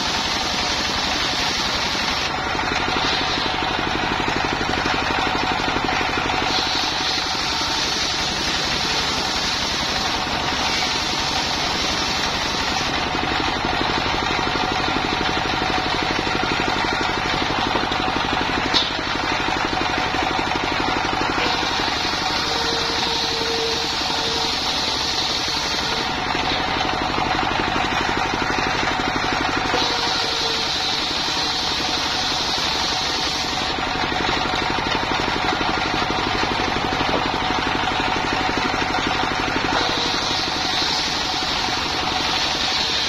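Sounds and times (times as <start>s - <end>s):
circular saw cutting timber: 0.0s - 43.0s
diesel engine running: 0.0s - 43.0s.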